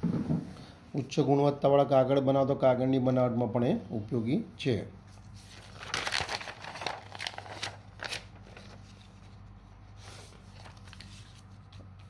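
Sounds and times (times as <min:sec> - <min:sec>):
paper rustling and crinkling: 0:05.1 - 0:12.0.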